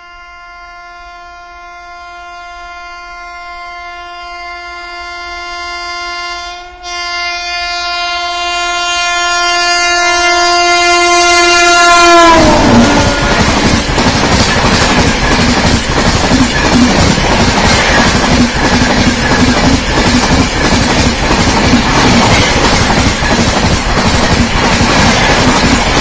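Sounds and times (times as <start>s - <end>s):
locomotive horn blast: 0.0s - 13.8s
rush of passing train: 6.3s - 26.0s.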